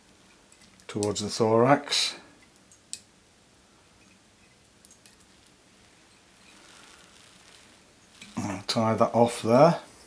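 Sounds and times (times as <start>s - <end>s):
tinsel scratching: 4.4s - 9.2s.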